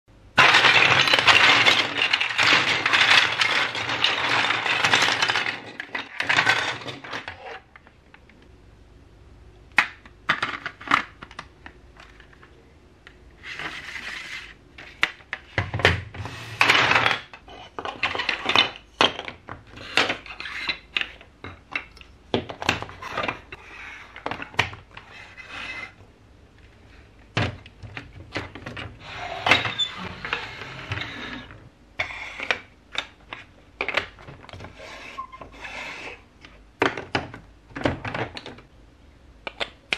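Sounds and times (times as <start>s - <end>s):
plastic blocks clattering: 0.3s - 7.9s, 9.8s - 12.5s, 13.4s - 26.0s, 26.6s - 38.7s
plastic pieces clicking together: 0.4s - 7.4s, 39.4s - 39.9s.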